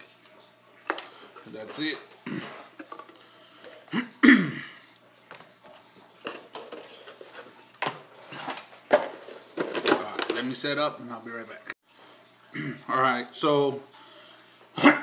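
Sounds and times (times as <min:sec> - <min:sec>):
objects being handled and set down: 0:00.8 - 0:03.9, 0:05.2 - 0:10.6
man clearing throat: 0:03.9 - 0:04.8, 0:12.5 - 0:12.9, 0:14.8 - 0:15.0.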